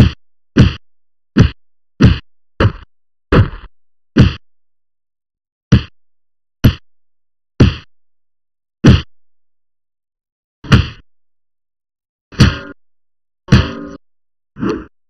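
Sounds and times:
heavy punch thwacks: 0.0s - 0.8s, 1.4s - 4.4s, 5.7s - 6.0s, 6.6s - 6.8s, 7.6s - 7.9s, 8.8s - 9.1s, 10.6s - 11.0s, 12.4s - 12.7s.

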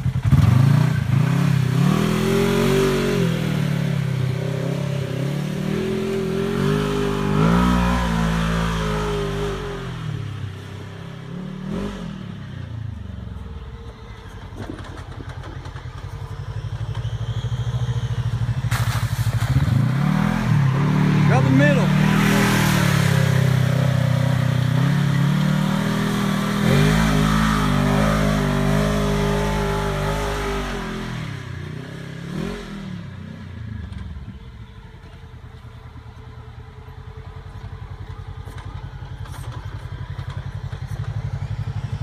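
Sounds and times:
engine revving hard: 0.2s - 10.2s, 19.5s - 33.0s.

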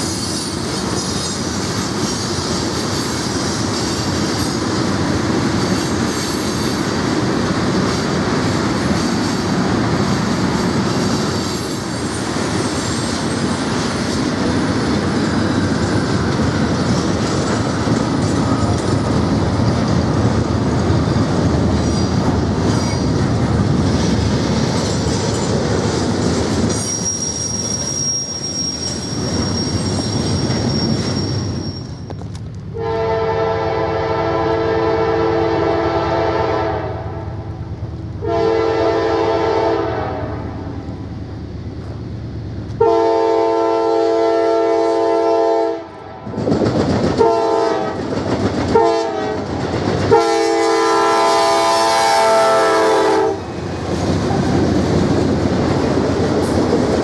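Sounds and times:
high wheel squeal: 0.0s - 4.6s, 11.0s - 13.7s, 21.8s - 23.2s, 26.6s - 32.4s
train wheels rolling on rails: 0.0s - 43.7s, 44.4s - 57.0s
locomotive air horn blasts: 32.8s - 37.4s, 38.2s - 40.5s, 42.8s - 45.9s, 47.2s - 48.0s, 48.8s - 49.4s, 50.1s - 53.5s.

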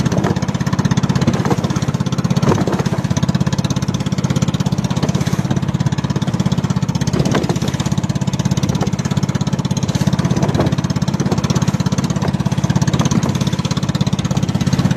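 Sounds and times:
boat engine pulsing: 0.0s - 14.9s.

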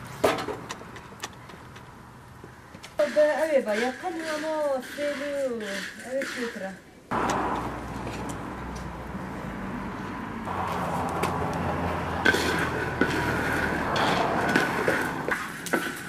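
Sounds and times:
wooden spatula stirring berries: 2.5s - 6.8s, 12.2s - 16.0s.

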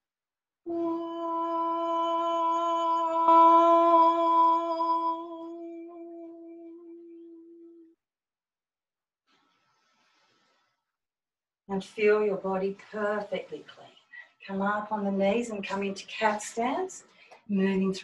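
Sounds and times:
woman holding a long note: 0.7s - 7.8s.

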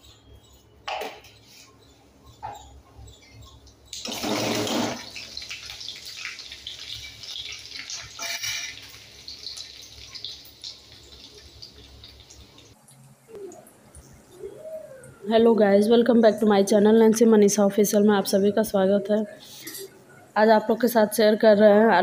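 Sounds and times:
seeds and garlic sizzling in oil: 4.0s - 12.8s.

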